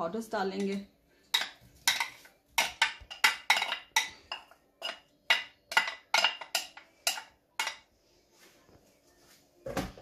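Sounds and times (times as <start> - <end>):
spoon clinking on glass bowls: 1.3 - 7.9.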